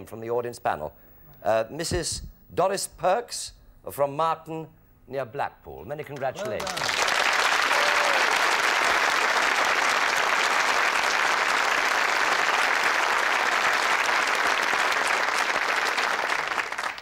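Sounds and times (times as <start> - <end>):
audience applauding: 6.3 - 17.0.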